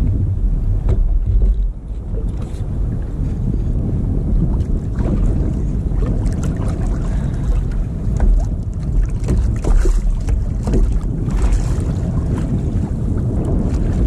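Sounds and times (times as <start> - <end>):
water lapping at kayak hull: 0.0 - 14.0
wind rumbling on microphone: 0.0 - 14.0
small splashes and knocks: 6.0 - 12.6.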